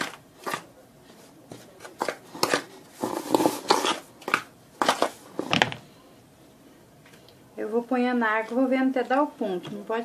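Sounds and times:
kitchen things rustling and knocking: 4.8 - 5.9.

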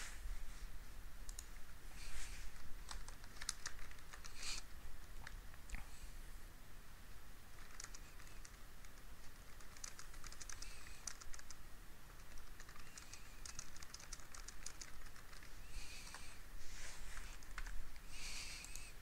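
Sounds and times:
computer keyboard typing: 2.8 - 4.5, 7.6 - 11.6, 12.2 - 16.2, 17.3 - 17.7.

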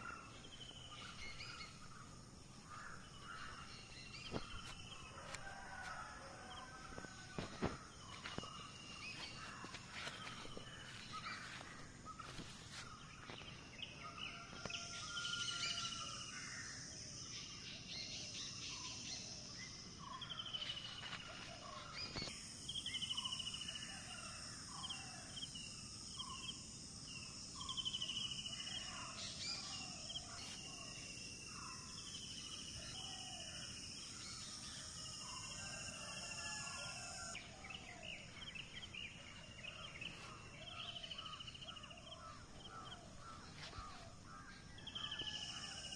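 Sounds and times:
birds chirping and calling: 0.0 - 16.5, 35.2 - 45.9.

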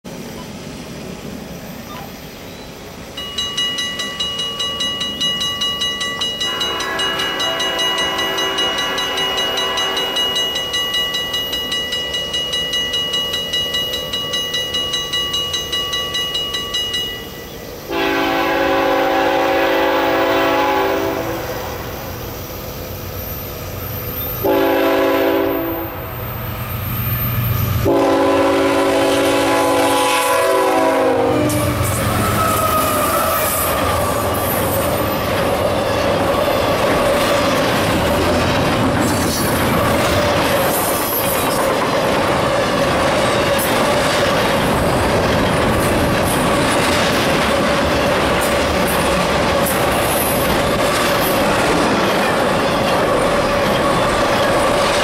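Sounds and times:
train rumble: 0.0 - 55.0
crossing warning bell ringing: 1.9 - 21.7, 23.4 - 38.4, 47.5 - 55.0
locomotive horn blasts: 6.4 - 10.3, 17.9 - 21.8, 24.4 - 26.0, 27.8 - 34.4.

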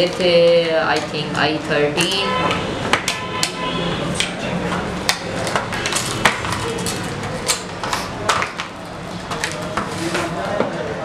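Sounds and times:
taps and knocks of handled boxes: 2.8 - 3.6, 4.2 - 10.8.

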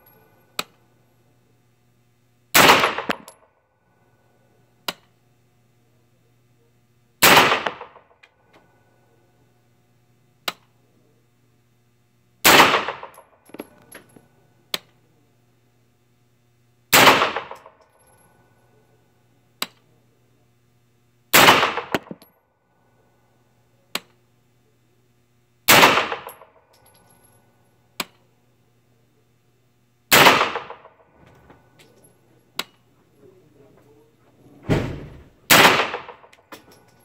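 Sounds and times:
low steady hum: 0.0 - 37.0
gunshots with echoing tail: 2.6 - 3.3, 7.2 - 8.0, 12.5 - 13.2, 17.0 - 17.7, 21.4 - 22.2, 25.7 - 26.4, 30.1 - 31.0, 35.5 - 36.3
small metallic clinks: 13.1 - 14.3, 17.5 - 18.5, 26.2 - 27.6, 36.2 - 37.0.

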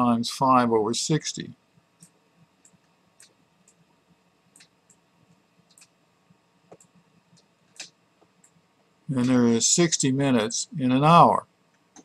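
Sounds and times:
stylus tapping on tablet: 6.7 - 8.6.

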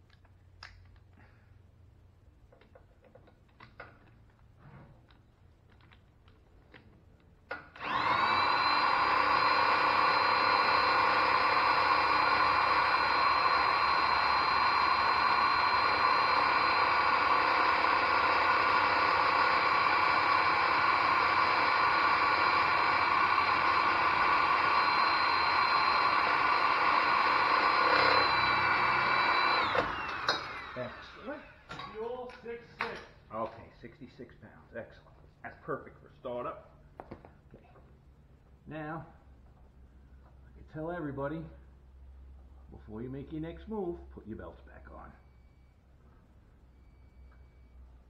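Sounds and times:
electric drill whining: 7.5 - 31.9.

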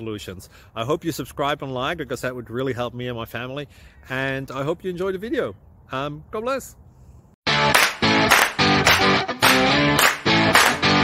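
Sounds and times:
strummed guitar music: 7.5 - 11.0.

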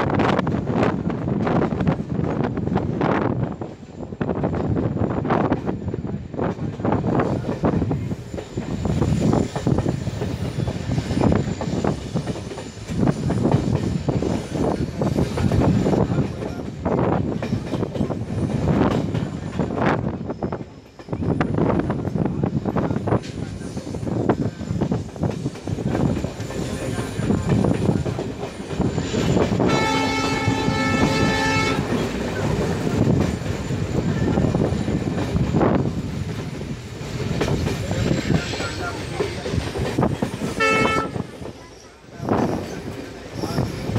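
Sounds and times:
train wheels clattering on rails: 0.0 - 43.9
locomotive horn: 29.6 - 32.0, 40.5 - 41.3.

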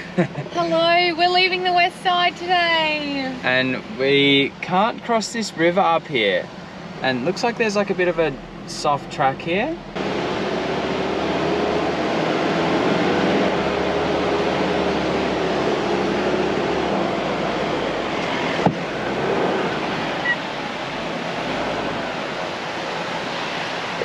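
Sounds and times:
wind: 0.0 - 24.0
vehicle engine driving through sand: 7.0 - 24.0.

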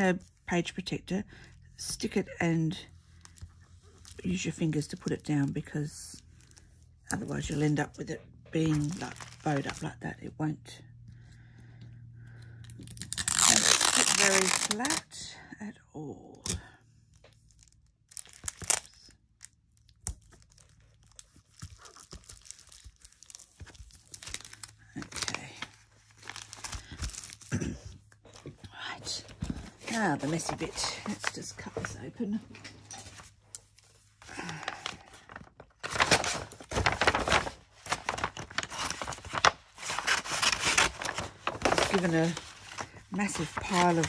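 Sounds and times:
plastic tape crinkling: 3.1 - 10.1, 12.4 - 15.2, 16.4 - 28.5, 32.9 - 44.0.

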